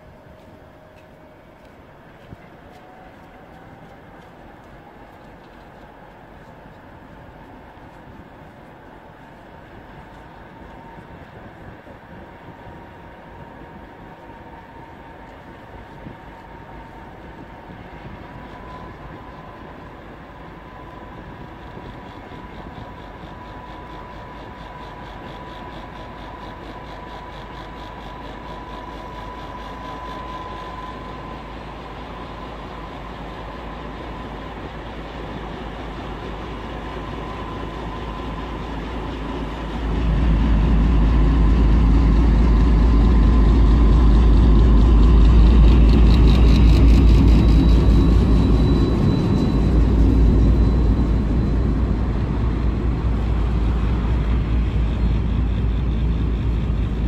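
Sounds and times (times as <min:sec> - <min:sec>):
train approaching: 0:00.0 - 0:57.0
steady high tone: 0:36.8 - 0:57.0.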